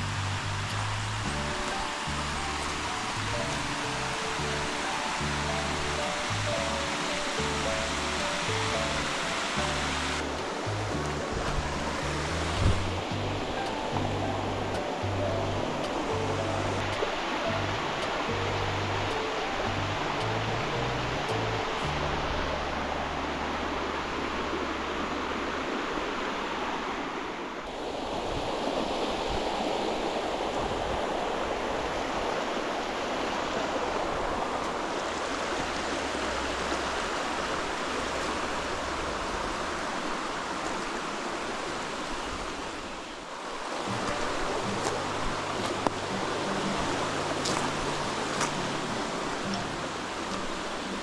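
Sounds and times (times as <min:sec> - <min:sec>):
quiet background music: 0:00.0 - 0:25.4, 0:43.7 - 0:51.0
stream water rushing: 0:00.0 - 0:51.0.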